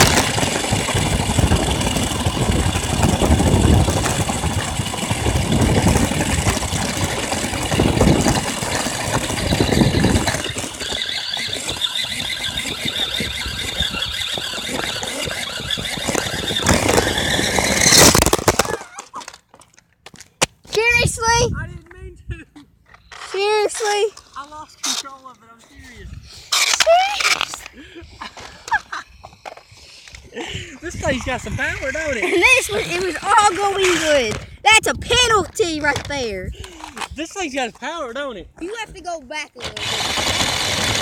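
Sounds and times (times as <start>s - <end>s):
toy car motor whine: 0.0s - 18.8s, 26.3s - 27.7s, 31.8s - 34.2s, 39.6s - 41.0s
toy car crashing clatter: 0.0s - 20.4s, 35.1s - 37.1s, 39.6s - 41.0s
wheels crunching on rough road: 0.0s - 21.4s, 30.0s - 38.0s, 38.6s - 41.0s.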